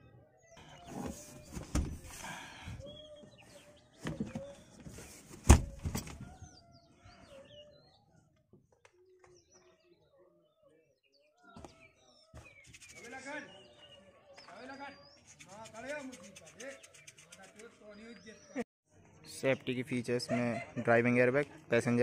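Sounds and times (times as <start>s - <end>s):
birds chirping: 0.3s - 22.0s
seat clunk: 0.9s - 2.2s
car seat knocking and rustling: 1.0s - 2.2s, 5.4s - 6.3s.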